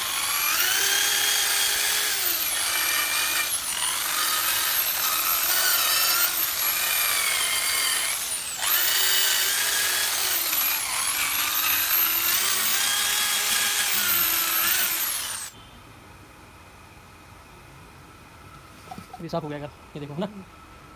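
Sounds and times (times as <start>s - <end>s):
electric drill motor whine: 0.0s - 15.6s.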